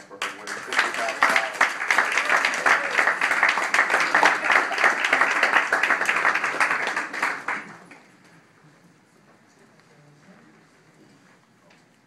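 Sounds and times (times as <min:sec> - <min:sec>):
applause: 0:00.0 - 0:08.2.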